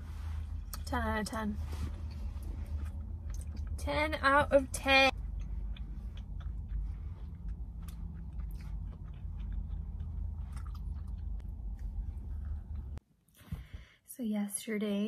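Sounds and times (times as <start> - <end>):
car cabin low rumble: 0.0 - 13.0
people chewing with mouth smacks: 1.9 - 3.8, 5.1 - 13.0.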